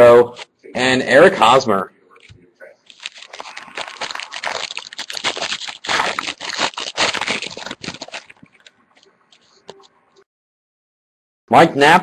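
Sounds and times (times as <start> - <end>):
wrapper crinkling and tearing: 2.9 - 9.5.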